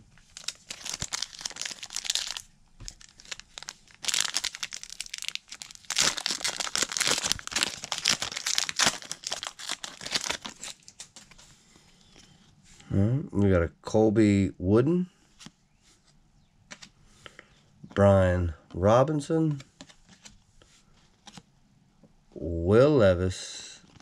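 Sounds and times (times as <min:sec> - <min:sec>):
foil wrapper tearing and crinkling: 0:00.3 - 0:11.2.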